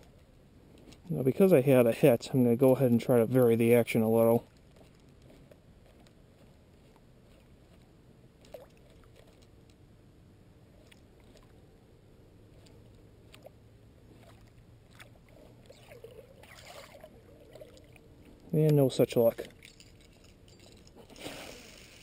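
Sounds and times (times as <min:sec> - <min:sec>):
water lapping at a boat: 0:00.0 - 0:22.0
lure splashing in water: 0:08.4 - 0:09.6, 0:10.8 - 0:11.6, 0:12.5 - 0:20.4.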